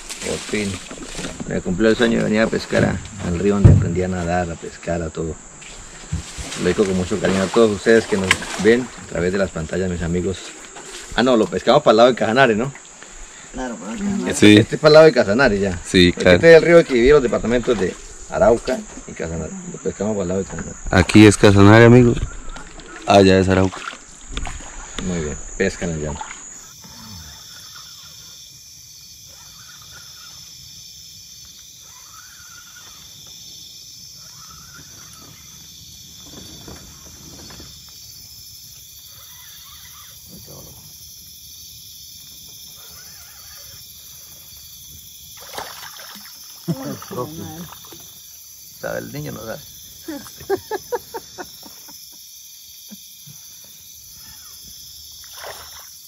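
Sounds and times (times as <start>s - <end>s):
splash in water: 0.0s - 1.5s, 6.2s - 9.2s, 22.1s - 25.3s, 45.3s - 48.2s, 55.2s - 56.0s
night insects chorus: 0.0s - 56.0s.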